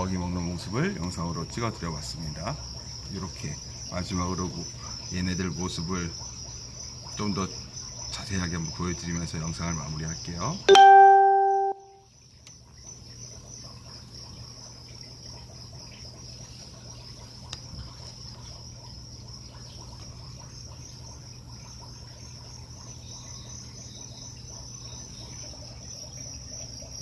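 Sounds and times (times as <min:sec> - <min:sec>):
crickets chirping: 0:00.0 - 0:27.0
low steady hum: 0:10.5 - 0:12.4.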